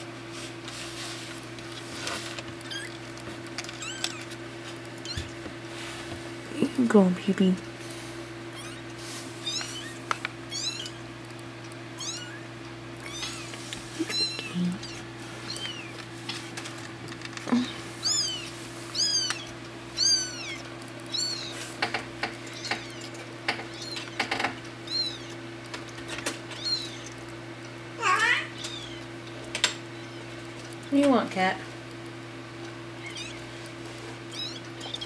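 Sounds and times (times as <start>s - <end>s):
steady low hum: 0.0s - 35.0s
kittens mewing: 2.6s - 5.4s, 8.3s - 16.4s, 17.4s - 30.7s, 31.9s - 35.0s.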